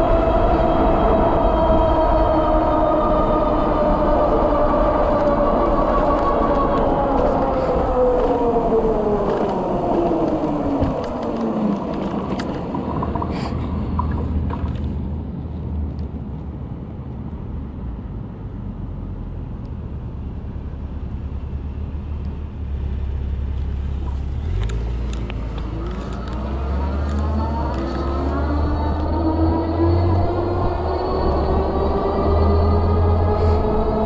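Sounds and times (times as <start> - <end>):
low rumble: 0.0 - 34.0
electric bike motor whine: 24.4 - 34.0.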